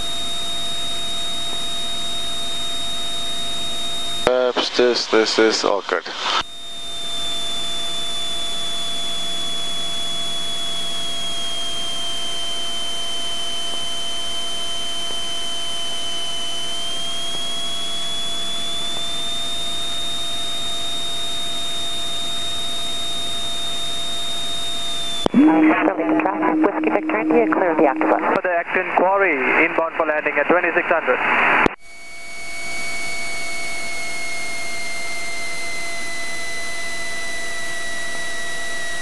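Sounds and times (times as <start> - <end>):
high whine: 10.8 - 29.8.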